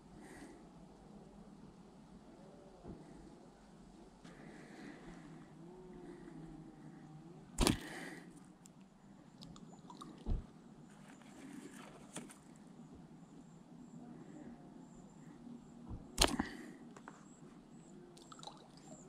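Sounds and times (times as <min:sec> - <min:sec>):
faint outdoor background: 0:00.0 - 0:19.0
dull thump: 0:10.2 - 0:10.5.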